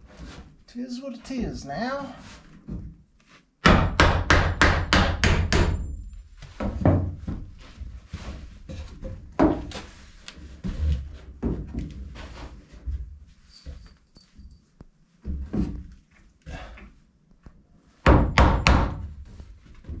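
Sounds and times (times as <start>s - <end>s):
hammer driving nails into wood: 3.6s - 5.8s.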